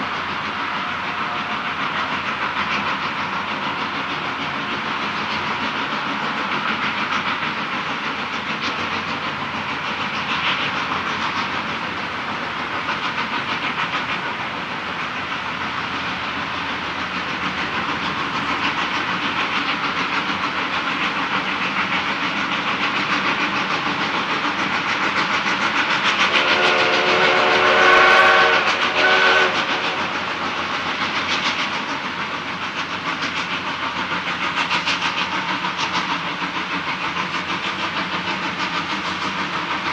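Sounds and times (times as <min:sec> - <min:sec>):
steam locomotive chuffing: 0:00.0 - 0:39.9
chime steam whistle blasts: 0:26.3 - 0:30.2.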